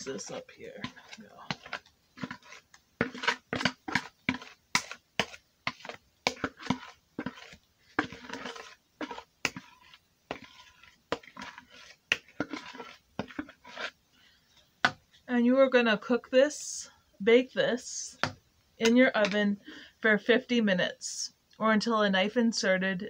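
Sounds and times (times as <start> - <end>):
utensil scraping a mixing bowl: 0.0 - 14.1.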